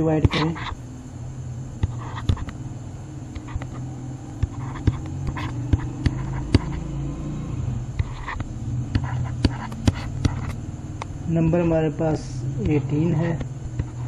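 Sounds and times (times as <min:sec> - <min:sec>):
steady low hum: 0:00.0 - 0:14.0
taps and clicks on screen: 0:01.8 - 0:02.6, 0:04.4 - 0:06.8, 0:08.0 - 0:11.8.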